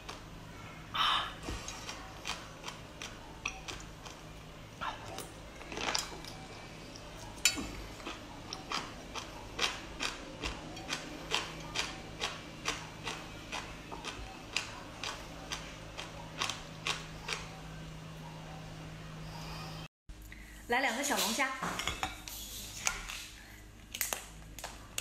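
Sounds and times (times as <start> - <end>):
chewing with sharp clicks: 1.8 - 4.3, 8.0 - 17.5.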